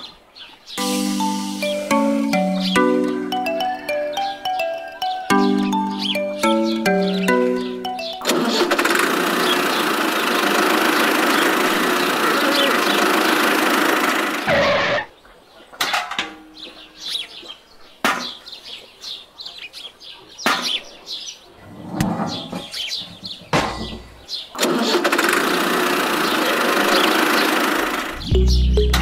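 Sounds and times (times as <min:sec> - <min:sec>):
birds chirping: 0:00.0 - 0:24.7, 0:26.0 - 0:29.0
tractor engine running: 0:06.9 - 0:14.9, 0:24.6 - 0:29.0.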